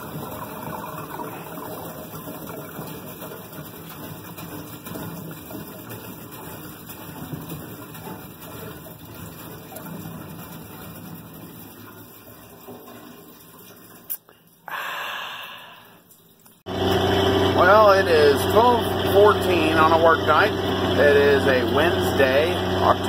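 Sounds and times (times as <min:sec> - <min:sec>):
gasoline gurgling from can: 0:00.0 - 0:16.1.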